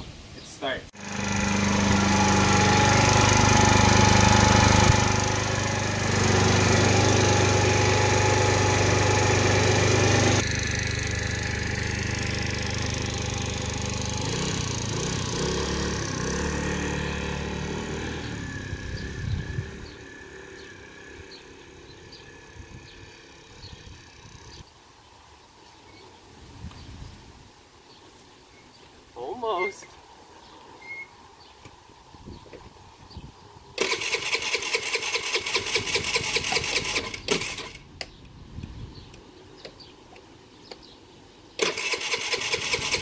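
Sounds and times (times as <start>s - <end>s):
scooter engine running and revving: 1.0s - 24.7s, 33.8s - 37.8s.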